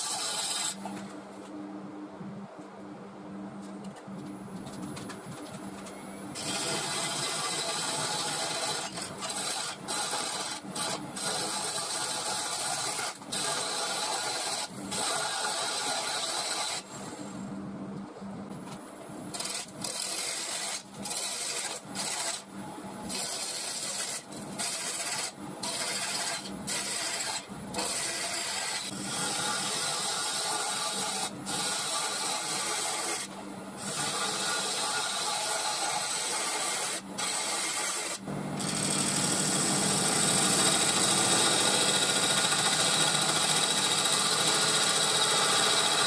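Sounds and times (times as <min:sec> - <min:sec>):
gouge cutting wood on lathe: 0:00.0 - 0:00.9, 0:06.4 - 0:17.1, 0:19.4 - 0:22.4, 0:23.1 - 0:46.0
lathe motor hum: 0:38.0 - 0:46.0.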